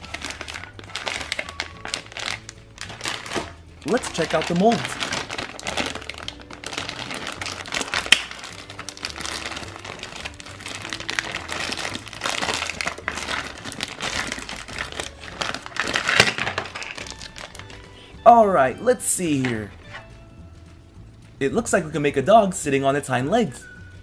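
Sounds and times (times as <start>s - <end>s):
plastic crinkling and rustling: 0.0s - 17.8s.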